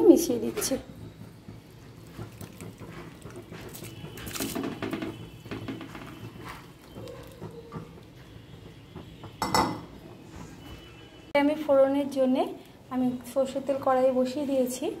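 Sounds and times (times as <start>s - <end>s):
rice and water splashing into pot: 1.4s - 10.0s.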